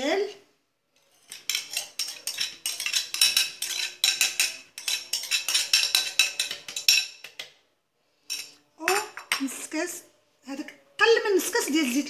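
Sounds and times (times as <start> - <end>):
spoon scraping ceramic bowl: 0.2 - 7.5, 8.2 - 9.7.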